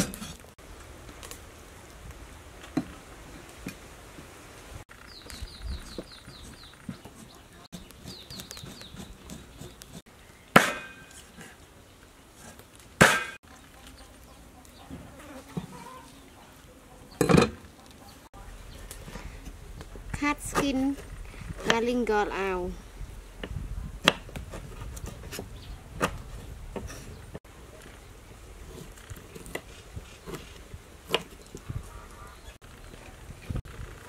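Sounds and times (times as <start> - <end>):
cleaver chopping on wooden board: 10.6 - 11.1, 23.4 - 26.2.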